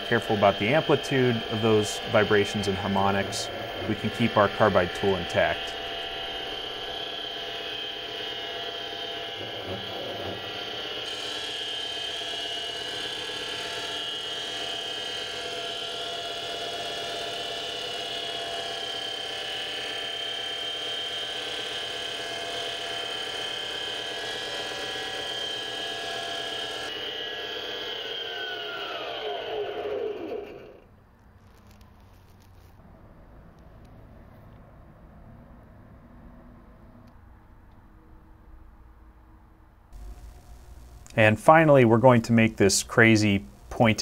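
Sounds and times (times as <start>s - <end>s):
lathe spindle whine: 0.0s - 30.9s, 40.0s - 44.0s.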